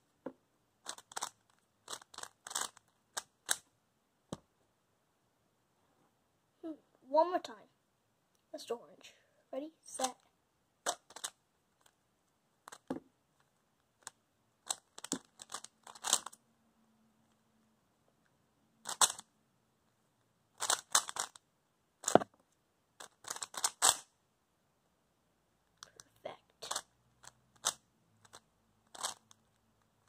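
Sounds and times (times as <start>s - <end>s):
puzzle cube clicking as turned: 0.8s - 3.6s, 10.8s - 12.0s, 14.0s - 16.4s, 18.8s - 19.3s, 20.6s - 21.4s, 23.0s - 24.1s, 26.7s - 29.4s.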